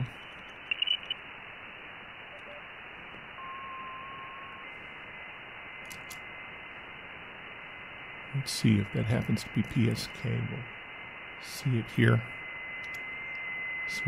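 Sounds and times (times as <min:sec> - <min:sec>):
radio whistle: 0:00.0 - 0:01.2, 0:11.4 - 0:14.0
radio receiver hiss: 0:00.0 - 0:14.0.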